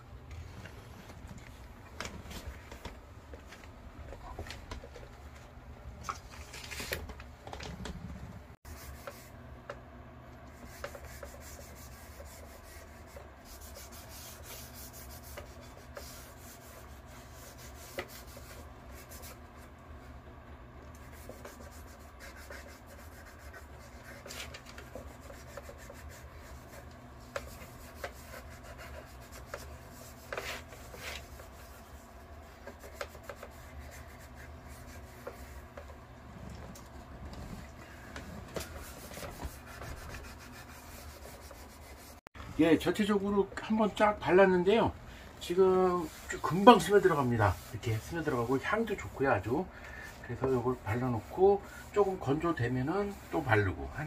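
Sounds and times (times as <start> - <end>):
cloth scrubbing wood: 10.6 - 19.5, 21.0 - 36.0, 37.5 - 42.2, 45.5 - 49.6.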